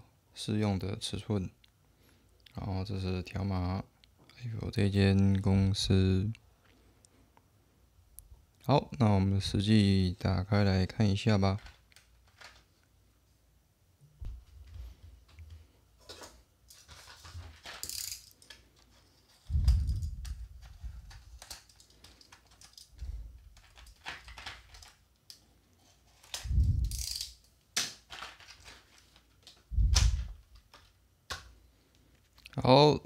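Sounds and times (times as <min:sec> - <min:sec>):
plastic blister scraping and clicking: 0:16.7 - 0:25.4.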